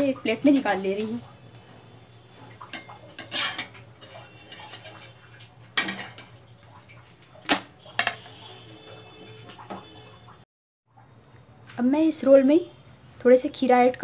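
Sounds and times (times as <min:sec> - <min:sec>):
spatula scraping: 0:02.7 - 0:06.3.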